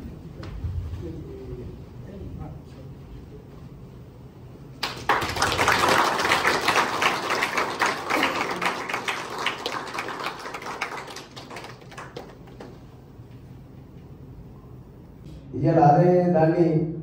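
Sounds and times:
audience applauding: 4.8 - 12.9.

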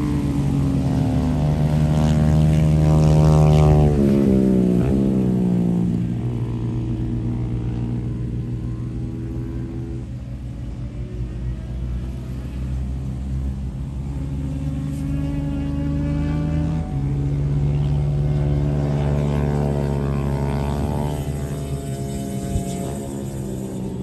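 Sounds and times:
motorcycle engine passing: 0.0 - 10.5, 12.2 - 24.0.

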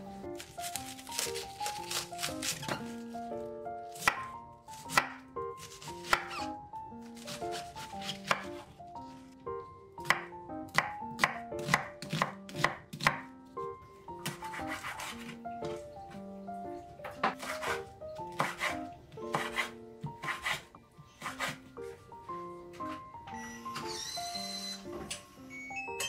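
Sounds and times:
knife slicing cabbage on board: 0.4 - 3.0, 7.1 - 8.6, 10.0 - 13.3, 14.2 - 15.8, 17.3 - 21.6.

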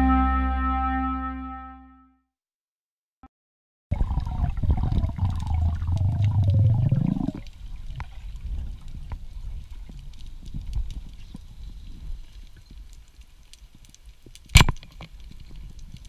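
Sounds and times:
underwater water rumble: 3.9 - 13.3
underwater clicks: 4.0 - 11.5, 12.3 - 16.0.

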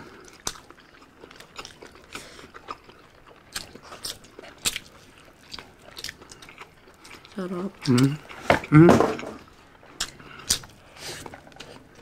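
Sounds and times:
people chewing and biting food: 0.0 - 12.0
wet mouth clicks and smacks: 10.0 - 10.8.

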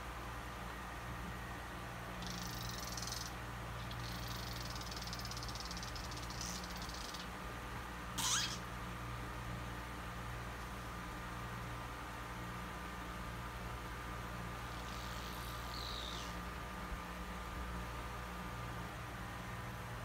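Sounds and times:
kitten meowing: 8.2 - 8.6.

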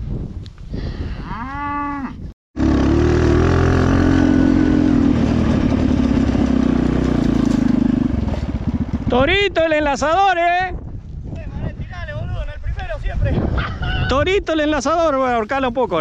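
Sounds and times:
small motorcycle engine running: 2.6 - 9.1.

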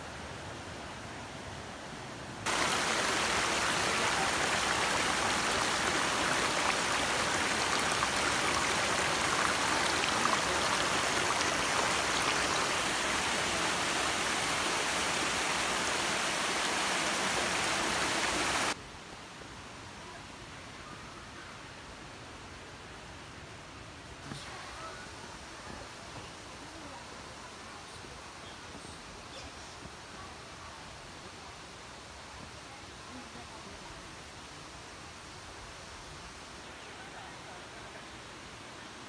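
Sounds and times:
stream splashing over rocks: 2.4 - 18.8.

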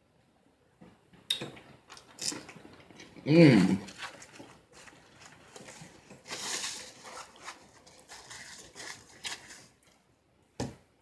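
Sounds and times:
crackly rustle: 3.8 - 10.0
food picked apart by hand: 3.8 - 10.0.

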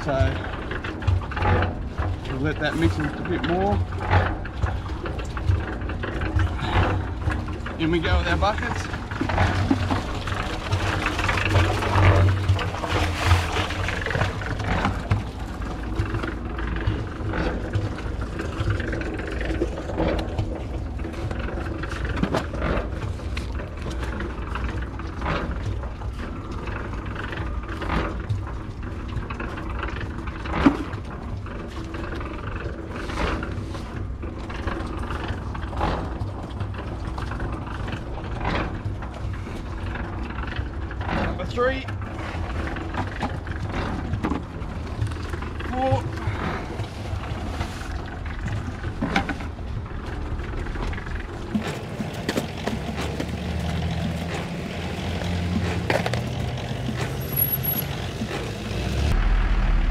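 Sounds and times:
cement mixer running: 0.0 - 59.9
shovel scraping and digging sand: 51.6 - 59.1.

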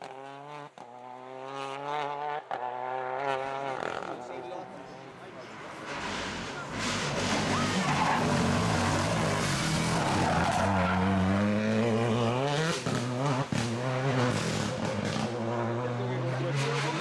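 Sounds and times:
rally car engine accelerating past: 5.1 - 17.0.

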